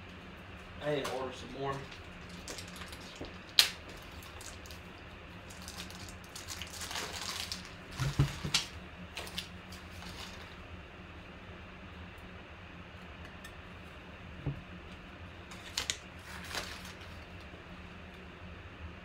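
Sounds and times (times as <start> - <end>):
faint room hum: 0.0 - 19.0.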